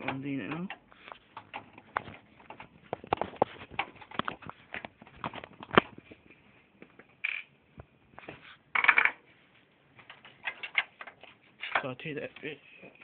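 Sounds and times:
scraping rustles: 0:00.8 - 0:06.4.

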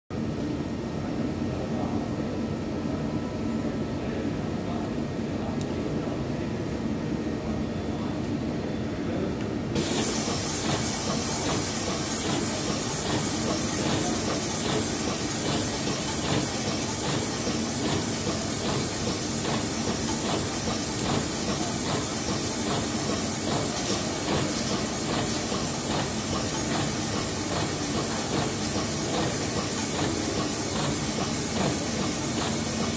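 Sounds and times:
low machine hum: 0:00.2 - 0:32.9
machine hissing: 0:09.8 - 0:32.9.

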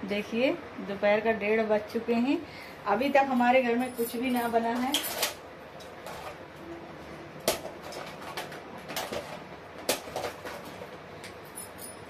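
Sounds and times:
plastic items clicking in a tub: 0:07.5 - 0:11.0.

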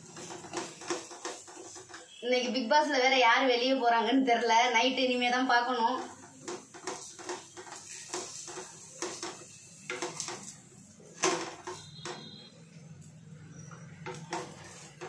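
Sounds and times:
spatula scraping a frying pan: 0:00.0 - 0:02.6, 0:05.1 - 0:12.5, 0:13.3 - 0:15.0.

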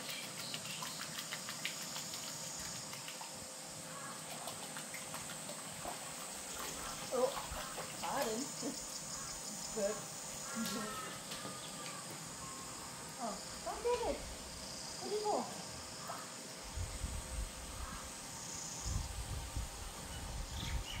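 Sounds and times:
high insect buzz: 0:00.0 - 0:21.0.

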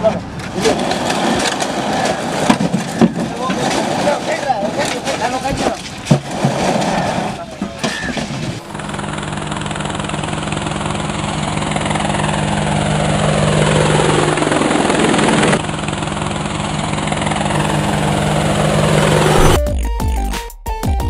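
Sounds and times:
drone propeller buzz: 0:08.6 - 0:15.7, 0:16.9 - 0:19.7
falling whoosh: 0:17.5 - 0:19.7.

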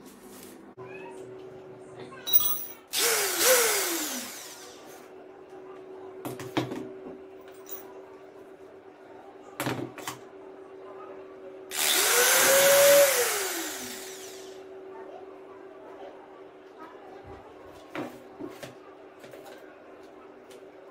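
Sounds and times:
electric drill spinning: 0:02.9 - 0:05.0, 0:11.7 - 0:14.6.

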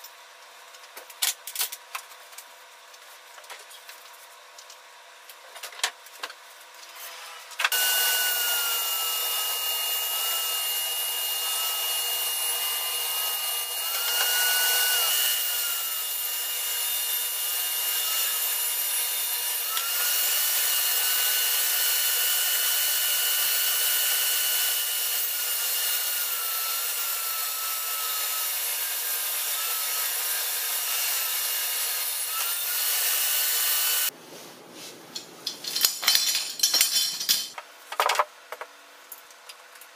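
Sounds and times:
table saw cutting board: 0:06.9 - 0:34.2.

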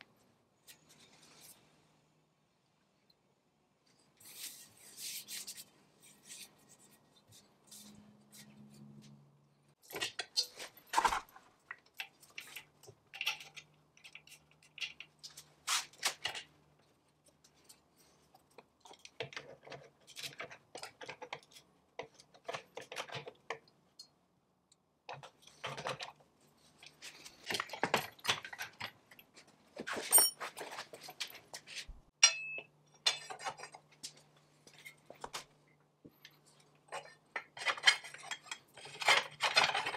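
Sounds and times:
metal parts clinking and scraping: 0:09.8 - 0:11.4, 0:12.0 - 0:16.5, 0:25.1 - 0:35.2, 0:36.2 - 0:39.9.

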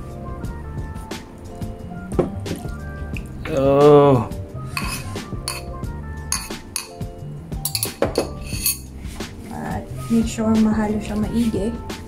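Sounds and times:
background music: 0:00.0 - 0:12.0
paddle scraping glass dish: 0:04.8 - 0:05.7, 0:08.2 - 0:08.9.

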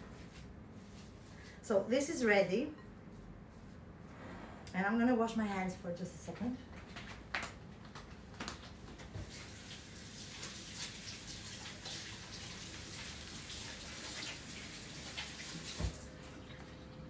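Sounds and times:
tap water running: 0:09.2 - 0:16.9.

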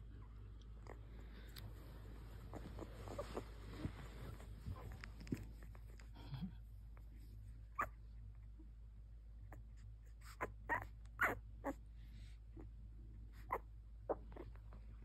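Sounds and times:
puppies squeaking and whimpering: 0:02.2 - 0:05.4, 0:10.2 - 0:11.8, 0:13.4 - 0:14.6.

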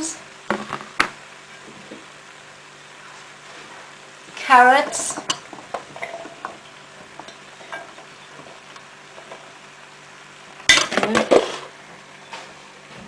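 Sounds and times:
vegetables clattering into a pot: 0:04.8 - 0:08.1, 0:10.7 - 0:11.8.

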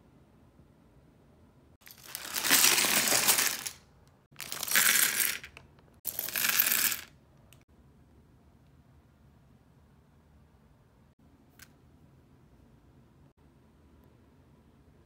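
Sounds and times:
plastic bricks clattering: 0:01.8 - 0:03.8, 0:04.4 - 0:07.1.

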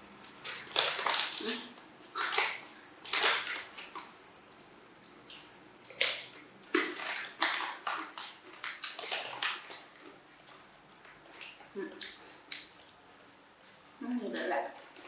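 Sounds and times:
monkey crunching peanuts: 0:00.3 - 0:04.1, 0:05.3 - 0:10.2.

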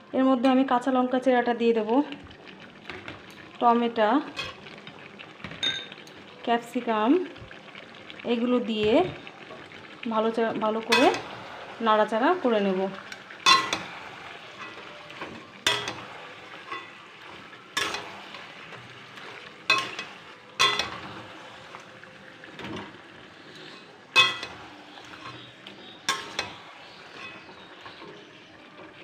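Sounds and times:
food sizzling in pan: 0:00.0 - 0:29.0
metal spatula clanking on pan: 0:04.3 - 0:04.8, 0:10.9 - 0:11.4, 0:13.1 - 0:18.4, 0:19.2 - 0:21.2, 0:24.1 - 0:28.0.

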